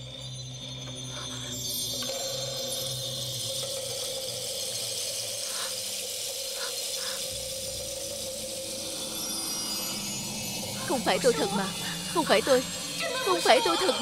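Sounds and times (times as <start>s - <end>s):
eerie drone: 0.0s - 14.0s
steady hiss: 0.9s - 14.0s.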